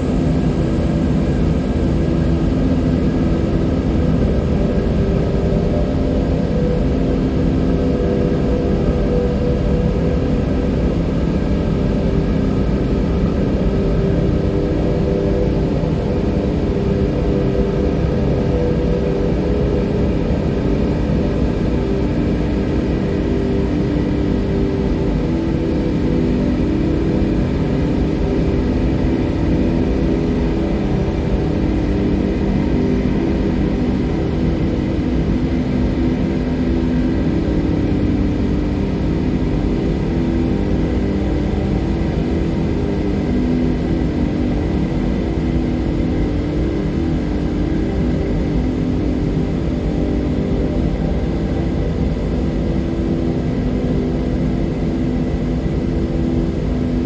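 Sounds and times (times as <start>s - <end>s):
ambient music drone: 0.0s - 57.0s.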